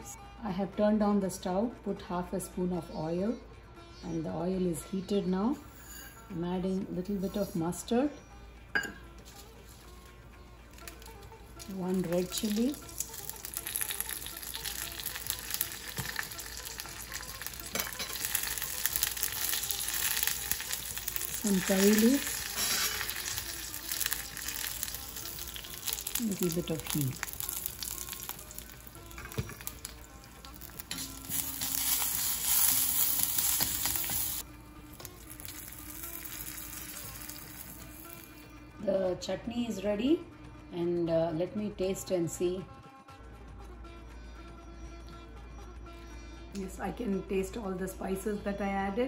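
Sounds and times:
seeds sizzling and popping in oil: 0:10.7 - 0:38.4.

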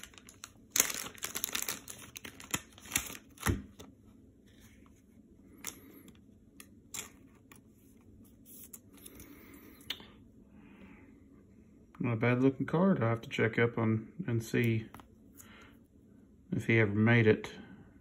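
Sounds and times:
plastic packaging crinkling: 0:00.0 - 0:03.9.

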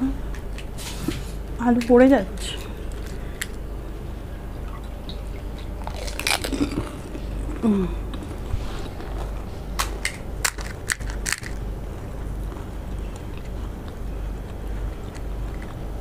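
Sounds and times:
crisp shells crackling: 0:05.7 - 0:07.2, 0:08.2 - 0:11.6
person humming: 0:07.4 - 0:08.3.

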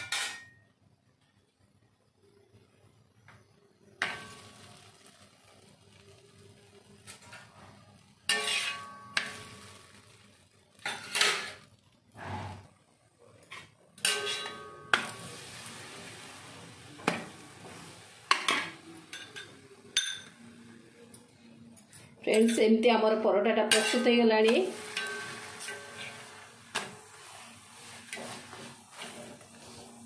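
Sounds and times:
metal utensil clanking on iron griddle: 0:00.0 - 0:00.6, 0:04.0 - 0:04.8, 0:08.3 - 0:09.9, 0:10.8 - 0:11.7, 0:13.4 - 0:15.3, 0:17.0 - 0:20.4, 0:23.7 - 0:27.4.

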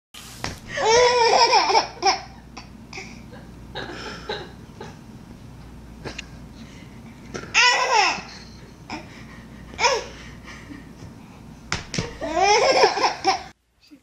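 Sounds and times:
baby laughing: 0:00.8 - 0:03.1, 0:07.5 - 0:09.1, 0:09.8 - 0:10.2, 0:12.2 - 0:13.5.

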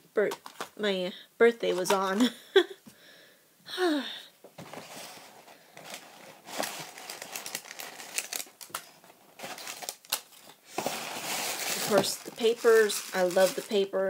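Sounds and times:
paper bag and tissue rustling: 0:04.7 - 0:14.0.

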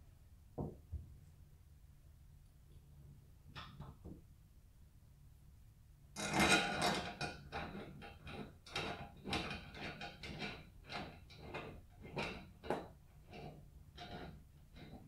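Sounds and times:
hands rubbing and scraping hardware: 0:06.2 - 0:15.0.

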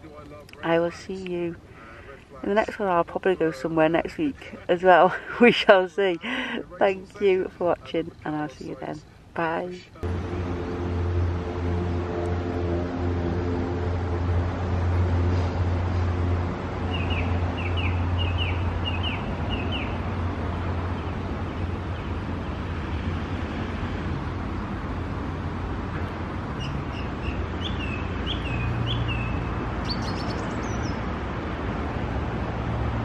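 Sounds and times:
steady low rumble: 0:06.3 - 0:23.2
songbird chirping: 0:16.8 - 0:22.8, 0:26.5 - 0:31.1.

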